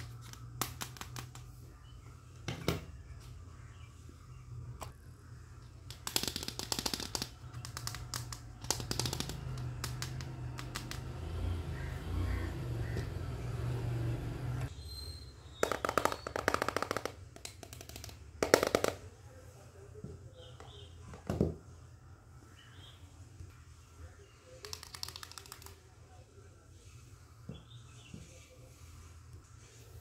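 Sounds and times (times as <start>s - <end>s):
plastic toy pieces handled: 5.8s - 11.0s.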